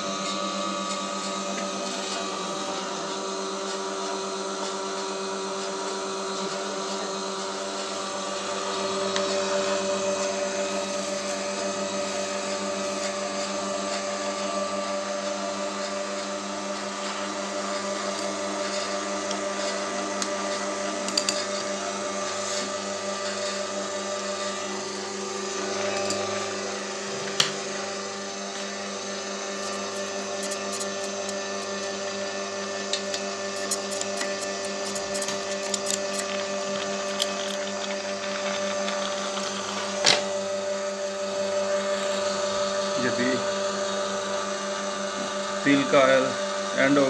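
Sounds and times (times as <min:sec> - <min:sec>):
oil press motor hum: 0:00.0 - 0:47.0.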